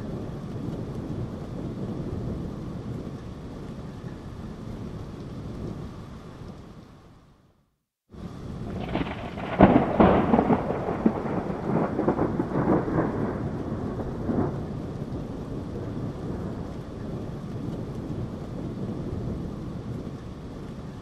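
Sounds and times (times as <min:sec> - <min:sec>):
steady rain: 0:00.0 - 0:21.0
thunder crack and peals: 0:08.3 - 0:20.2.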